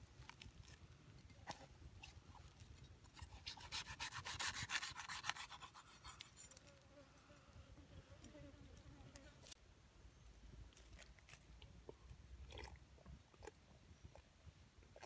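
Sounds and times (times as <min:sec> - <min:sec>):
knife scraping coconut husk: 0:01.4 - 0:06.6.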